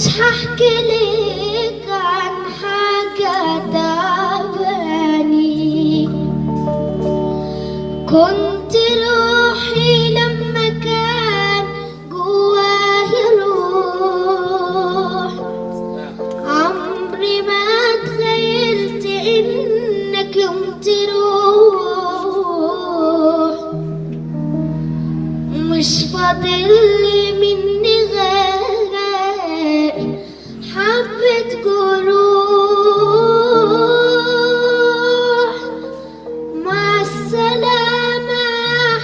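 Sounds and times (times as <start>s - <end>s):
girl singing into a microphone: 0.0s - 24.7s, 25.4s - 39.0s
held low accompaniment notes: 0.0s - 39.0s.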